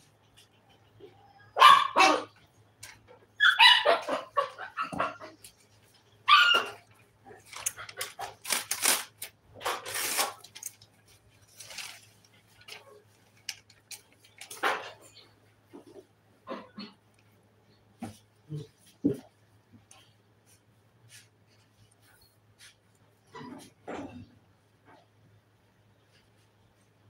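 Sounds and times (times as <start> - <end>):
dog barking: 1.5 - 2.4, 3.4 - 5.4.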